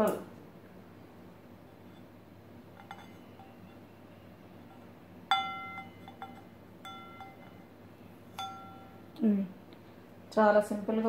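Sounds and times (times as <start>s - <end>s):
steel plate clinking: 2.7s - 3.9s, 4.6s - 7.7s, 8.3s - 9.1s.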